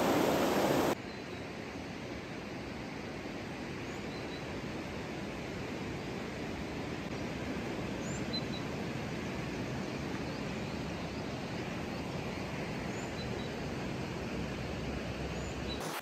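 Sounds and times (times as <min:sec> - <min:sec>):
steady rushing noise: 0:00.0 - 0:01.0.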